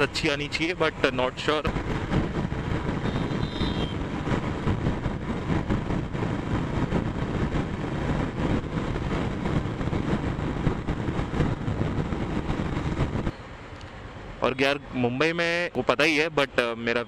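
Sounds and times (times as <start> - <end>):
wind on microphone: 0.0 - 13.4
motorcycle engine cruising: 1.7 - 13.3.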